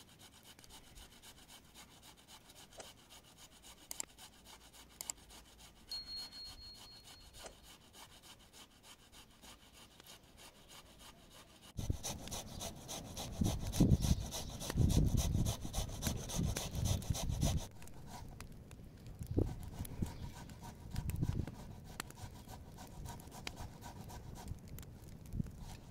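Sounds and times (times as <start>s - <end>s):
wood fire crackling in stove: 17.6s - 25.9s.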